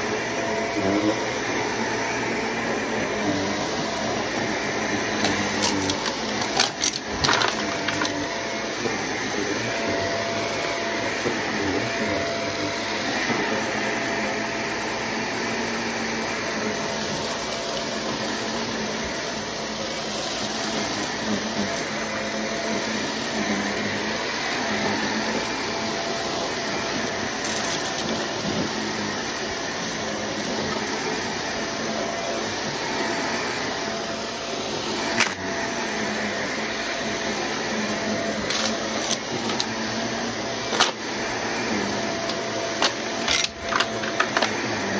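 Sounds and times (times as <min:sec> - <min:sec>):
vacuum cleaner running over carpet: 0:00.0 - 0:44.9
debris clicking in vacuum: 0:05.2 - 0:08.2.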